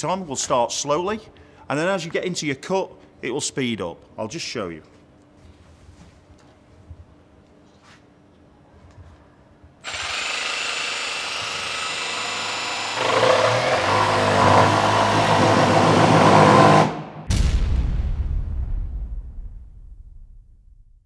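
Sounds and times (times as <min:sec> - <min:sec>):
jigsaw cutting wood: 0:09.8 - 0:17.0
sudden low boom: 0:17.2 - 0:21.0.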